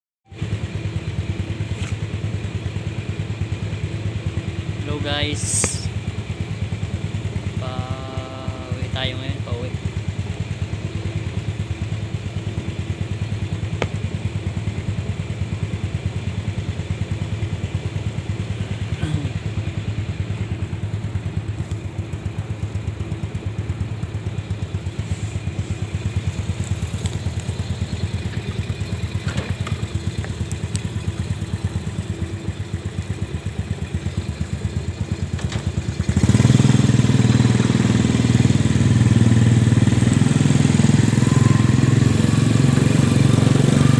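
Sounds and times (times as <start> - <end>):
motorcycle engine idling: 0.3 - 43.9
motorcycle revving away: 4.9 - 6.0, 18.7 - 20.0, 35.4 - 43.9.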